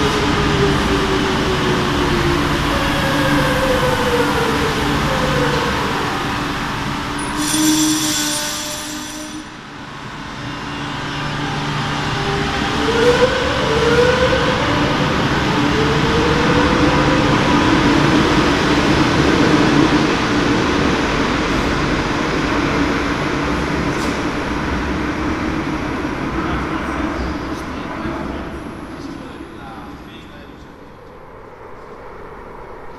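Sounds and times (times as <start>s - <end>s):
train rumble: 0.0s - 32.9s
high shrill tone: 7.2s - 9.6s.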